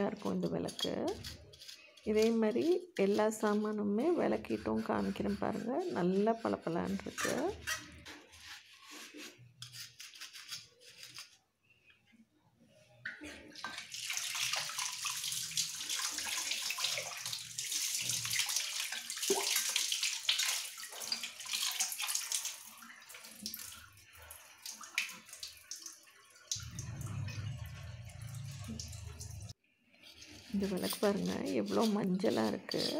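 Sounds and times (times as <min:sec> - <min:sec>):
scouring pad scrubbing metal: 0:00.0 - 0:11.2, 0:30.2 - 0:32.9
tap water running: 0:13.0 - 0:29.6.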